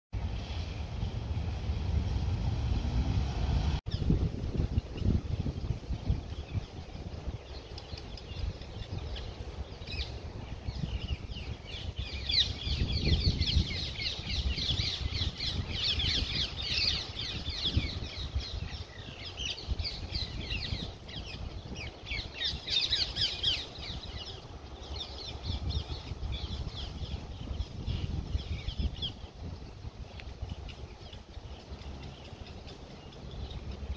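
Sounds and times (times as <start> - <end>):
low rumble: 0.2 - 19.1
birds chirping: 3.9 - 33.9.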